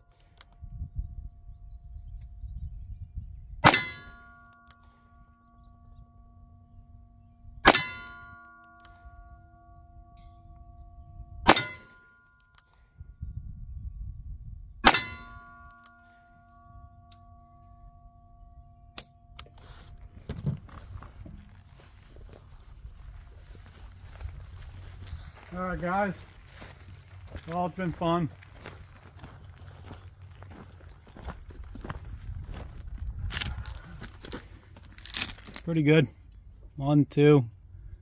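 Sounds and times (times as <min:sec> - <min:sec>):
metallic ringing: 0:03.6 - 0:13.2, 0:14.8 - 0:20.1.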